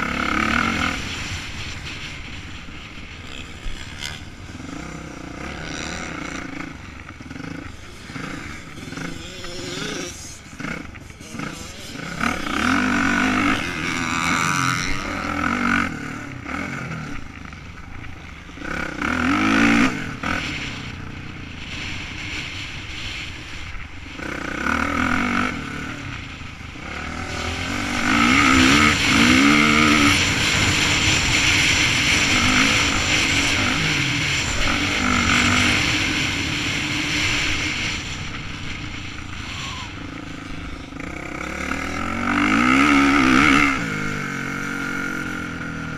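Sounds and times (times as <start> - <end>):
rush of air: 0.0 - 17.0
motorbike engine revving: 0.0 - 45.9.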